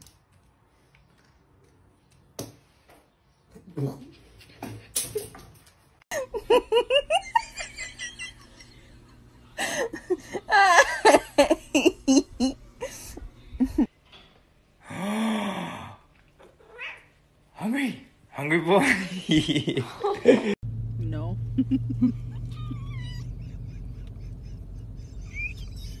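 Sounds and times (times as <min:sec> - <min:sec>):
people laughing: 0:06.1 - 0:13.9, 0:18.8 - 0:20.6, 0:21.6 - 0:26.0.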